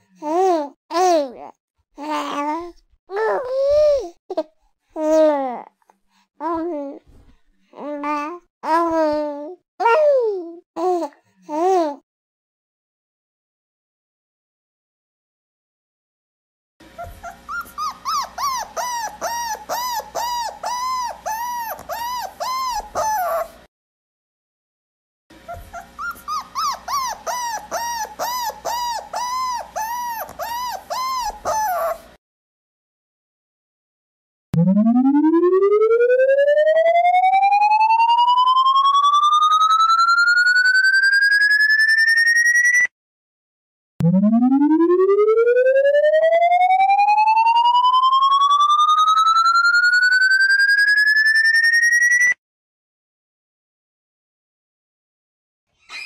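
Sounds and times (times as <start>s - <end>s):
dog whimpering: 3.1s - 4.0s, 17.0s - 23.6s, 25.4s - 32.1s
pulsing rising electronic tone: 34.6s - 42.8s, 44.0s - 52.1s.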